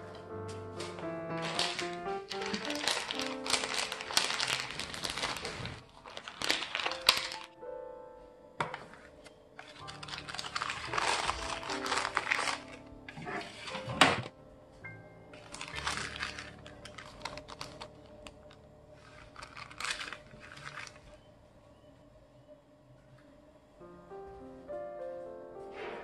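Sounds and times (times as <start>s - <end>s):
soft background music: 0.0s - 26.0s
baking paper crinkling: 0.8s - 7.6s, 8.6s - 14.3s, 15.3s - 21.3s
chocolate cracking: 0.9s - 7.6s, 8.6s - 13.4s, 15.3s - 21.3s.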